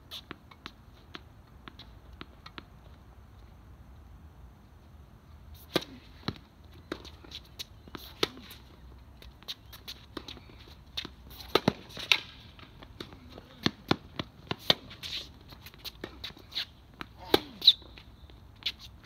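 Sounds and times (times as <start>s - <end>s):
tennis ball struck by rackets: 5.6s - 8.6s, 11.0s - 15.2s
tennis ball bouncing on court: 5.6s - 18.0s.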